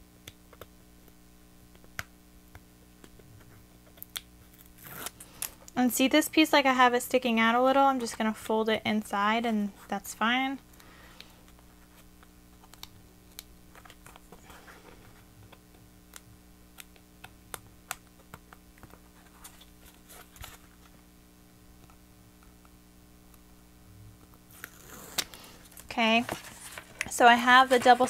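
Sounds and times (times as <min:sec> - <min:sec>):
paper and tape handled: 0:18.0 - 0:21.0, 0:24.4 - 0:28.0.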